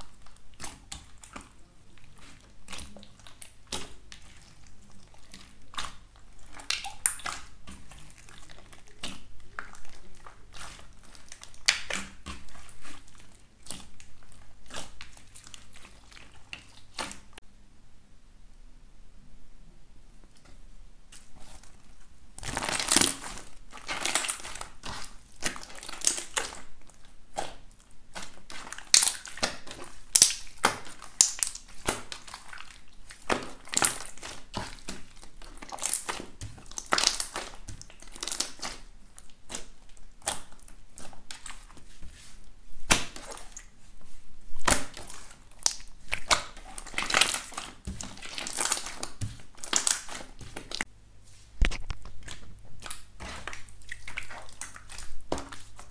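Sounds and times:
slime crackling and popping: 0.0s - 17.4s, 21.1s - 41.8s, 44.6s - 50.9s.

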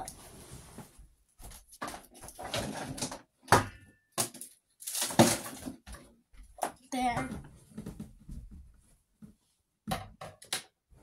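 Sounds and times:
packaging rustling and knocking: 4.2s - 6.0s.

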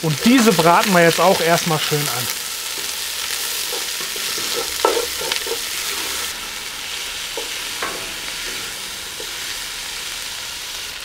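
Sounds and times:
vegetables sizzling in oil: 0.0s - 11.0s
wooden spatula scraping pot: 3.5s - 9.6s.

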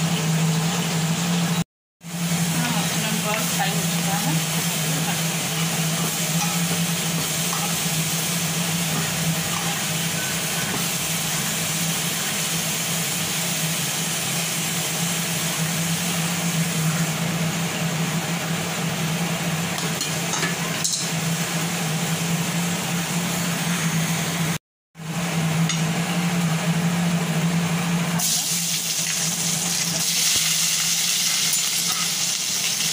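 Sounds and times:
food deep-frying in oil: 0.0s - 32.9s
slotted spoon clinking on pan: 31.5s - 32.2s.

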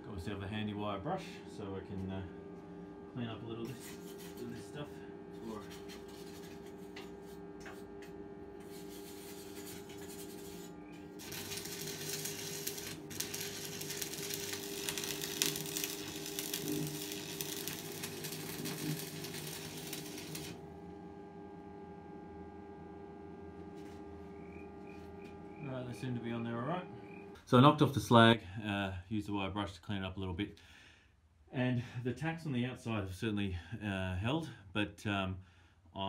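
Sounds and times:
low steady hum: 0.0s - 30.7s
welding arc crackling and sizzling: 3.6s - 20.6s.

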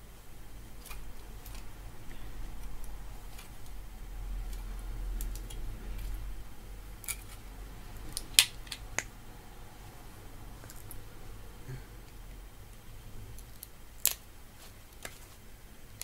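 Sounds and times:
plastic snapping: 8.0s - 9.1s.

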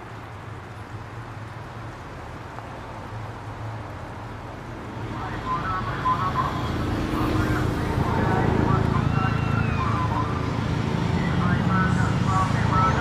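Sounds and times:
traffic hum: 0.0s - 13.0s.

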